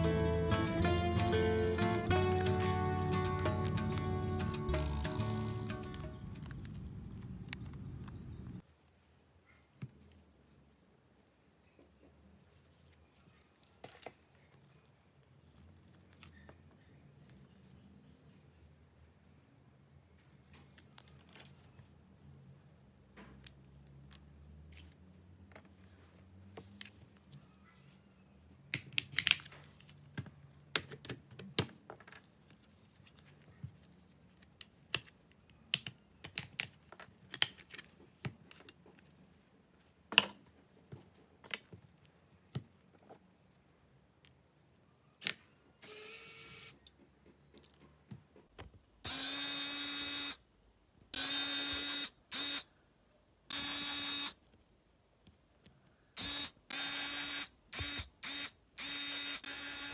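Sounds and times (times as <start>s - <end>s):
electric screwdriver whirring: 49.1s - 50.4s, 51.2s - 52.6s, 53.5s - 54.4s, 56.2s - 59.9s.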